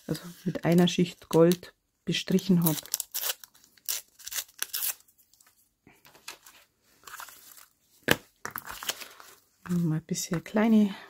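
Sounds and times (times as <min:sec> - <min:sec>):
paper crinkling and tearing: 0:02.4 - 0:05.1.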